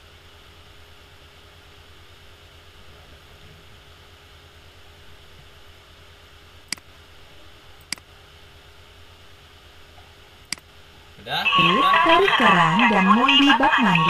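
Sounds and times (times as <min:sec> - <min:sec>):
low hum and hiss: 0:00.0 - 0:14.0
computer mouse clicks: 0:06.7 - 0:06.9, 0:07.8 - 0:08.1, 0:10.5 - 0:10.7.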